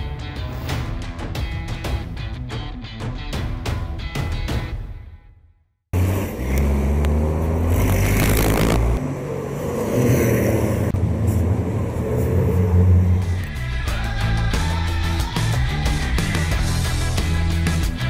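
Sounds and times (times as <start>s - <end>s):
truck diesel engines racing: 5.9s - 17.0s
truck rushing past: 6.0s - 13.6s.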